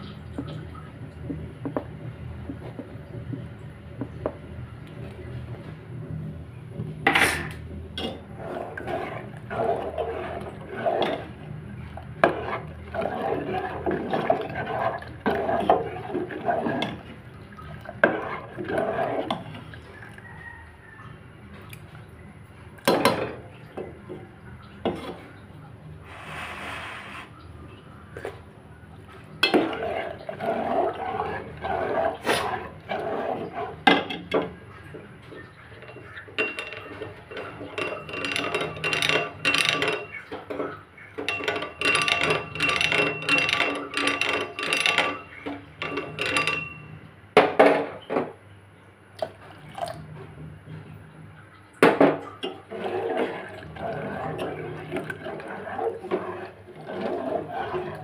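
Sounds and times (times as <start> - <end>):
metal spoon scraping a pot: 7.2 - 11.4, 12.2 - 17.1, 18.0 - 19.6, 29.4 - 34.4, 35.7 - 40.3, 41.2 - 46.9, 52.4 - 58.0
spoon clinking against pot: 35.8 - 40.2, 41.2 - 46.9.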